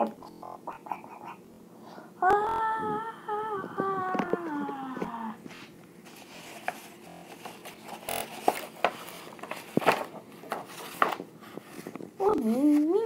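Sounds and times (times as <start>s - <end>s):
person humming: 2.2s - 5.5s
paper pages rustling: 5.6s - 13.0s.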